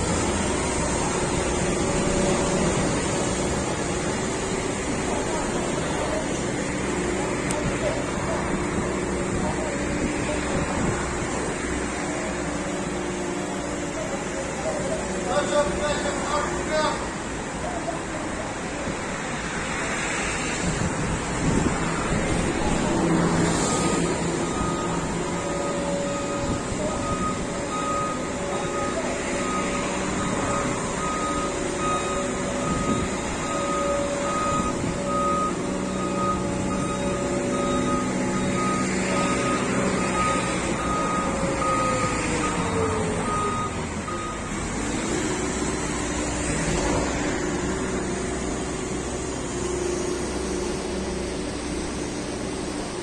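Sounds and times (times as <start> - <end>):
diesel engine running: 0.0 - 53.0
reversing alarm beeping: 23.6 - 45.9.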